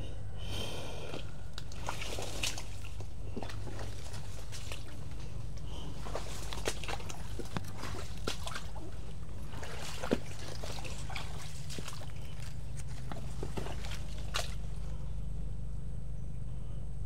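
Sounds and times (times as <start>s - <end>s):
footsteps through undergrowth: 1.6s - 15.0s.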